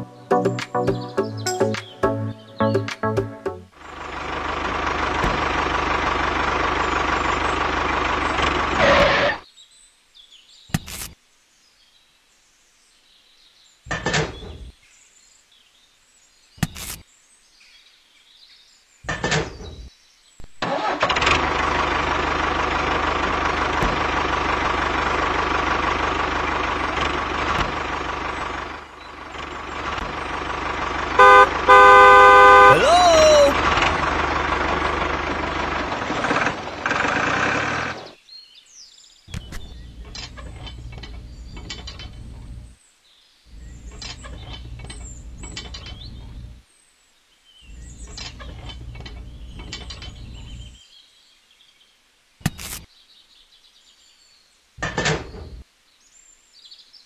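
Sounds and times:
tractor engine running: 3.0s - 9.4s, 20.6s - 38.2s, 39.3s - 42.8s, 43.5s - 46.6s, 47.7s - 50.8s
short knocks: 23.8s - 24.1s.

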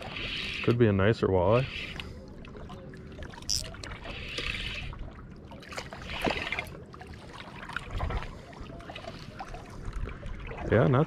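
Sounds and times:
water lapping against boat hull: 0.0s - 11.0s
fishing reel clicking: 3.5s - 3.7s.

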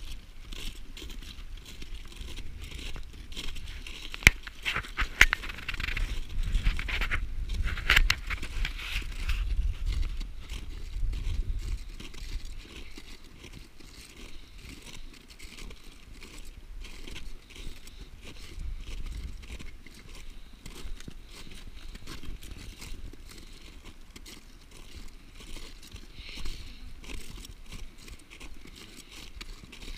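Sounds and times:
crampon footsteps on ice: 0.0s - 29.9s.

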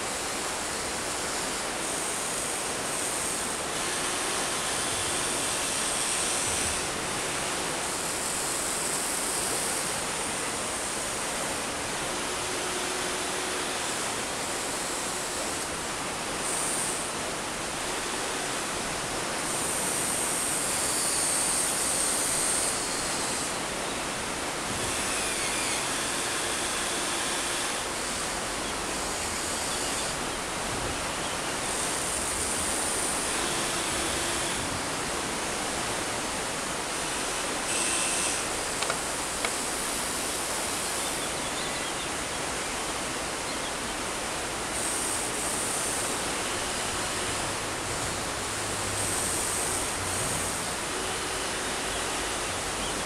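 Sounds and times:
river water rushing: 0.0s - 53.0s
toy excavator motors whining: 24.6s - 36.3s, 36.9s - 47.6s, 48.9s - 53.0s
small clicks: 38.8s - 39.6s.

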